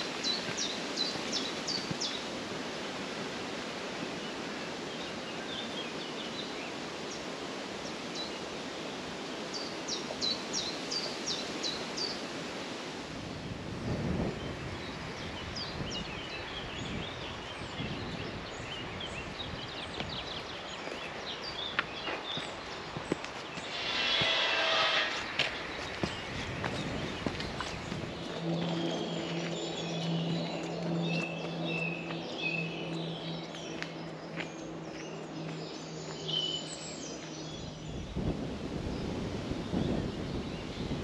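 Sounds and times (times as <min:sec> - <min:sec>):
songbird singing: 0:00.0 - 0:12.3, 0:14.2 - 0:41.0
steady hiss: 0:22.8 - 0:26.6
low rumbles: 0:23.5 - 0:35.7.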